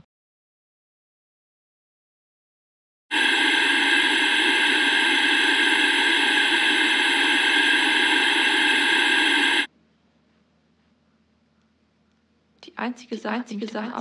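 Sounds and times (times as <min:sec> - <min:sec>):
static hiss: 0:03.1 - 0:09.7.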